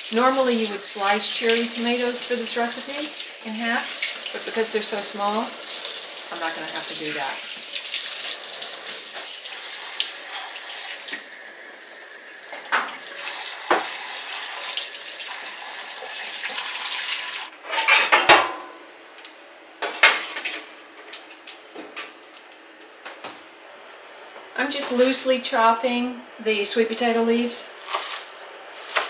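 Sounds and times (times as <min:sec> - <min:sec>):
tap water pouring into sink: 0:00.0 - 0:17.5.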